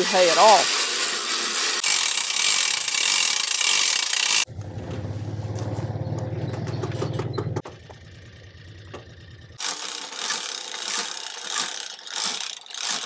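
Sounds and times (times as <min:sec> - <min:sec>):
winch ratchet pawl clicking: 0:00.0 - 0:04.5, 0:09.6 - 0:13.0
low engine hum: 0:04.5 - 0:09.6.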